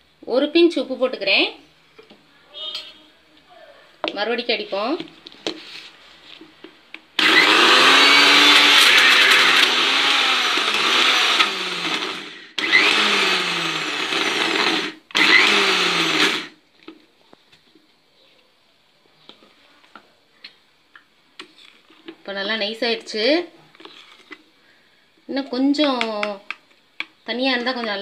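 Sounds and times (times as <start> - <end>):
mixer grinder running: 7.2 - 16.6.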